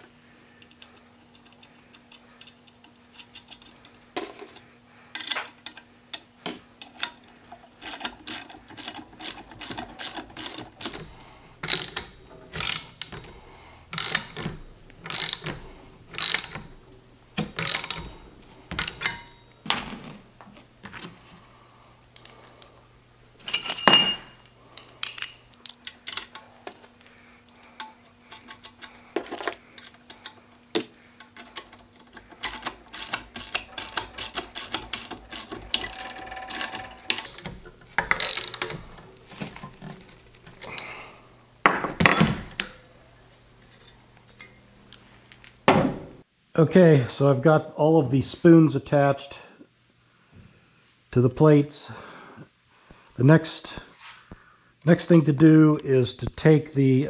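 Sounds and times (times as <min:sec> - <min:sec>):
ratchet wrench clicking: 0:07.8 - 0:13.3, 0:13.9 - 0:16.7, 0:17.4 - 0:19.4, 0:31.4 - 0:39.0
sharp metallic clink: 0:23.5 - 0:25.4.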